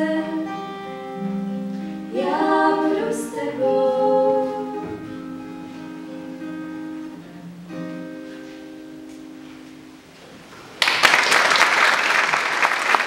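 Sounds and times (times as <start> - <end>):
acoustic guitar chords: 0.0 - 10.7
audience applause: 10.7 - 13.0.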